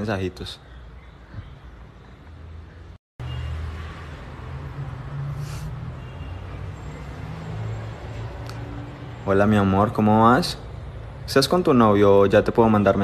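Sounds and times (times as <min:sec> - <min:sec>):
short hiss: 0:05.4 - 0:05.8.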